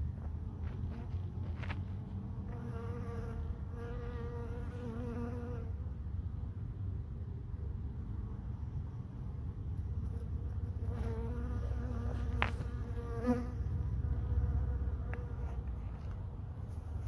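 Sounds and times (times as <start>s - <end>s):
bumblebee buzzing: 2.4s - 5.7s, 10.0s - 15.8s.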